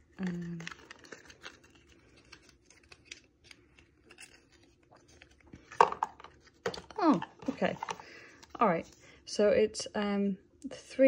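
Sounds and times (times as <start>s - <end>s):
packaging rustles and clicks: 0.1s - 8.6s.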